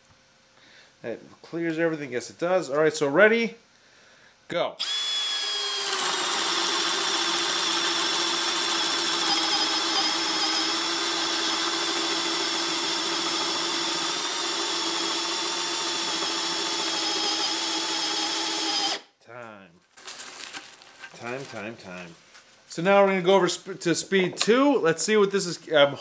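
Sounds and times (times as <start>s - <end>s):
drill whining under load: 4.8s - 19.0s.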